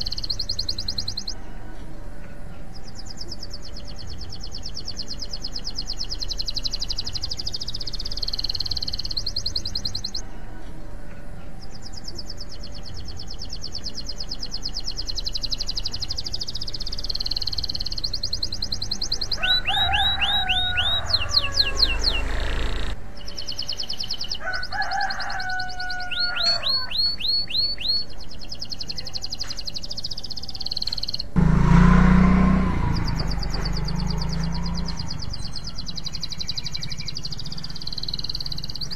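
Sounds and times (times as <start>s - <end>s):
canary singing trills: 0.0s - 1.9s, 2.5s - 10.2s, 11.2s - 38.9s
loud low rumble: 31.4s - 35.8s.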